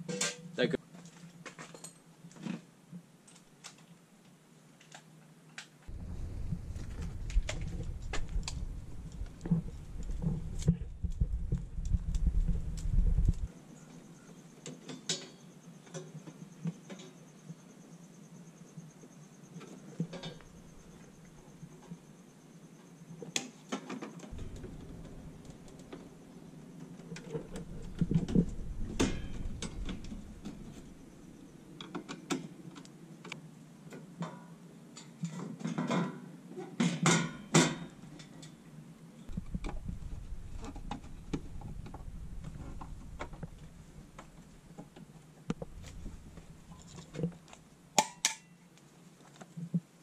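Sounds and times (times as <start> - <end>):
low rumble: 5.9 - 13.5, 24.3 - 31.8, 39.3 - 47.7.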